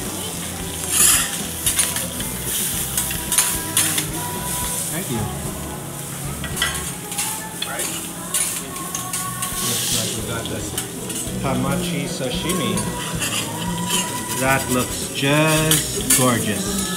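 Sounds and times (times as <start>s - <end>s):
food sizzling on griddle: 0.0s - 16.9s
metal spatula scraping: 6.0s - 16.9s.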